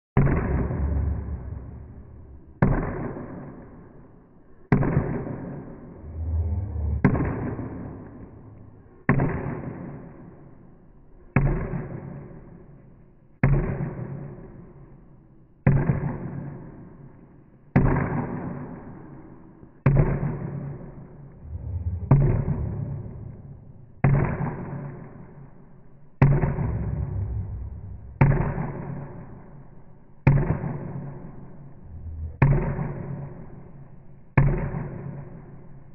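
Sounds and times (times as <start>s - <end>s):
dramatic soundtrack hits: 5.9s - 8.6s, 21.4s - 24.0s, 26.2s - 28.9s, 31.8s - 33.7s.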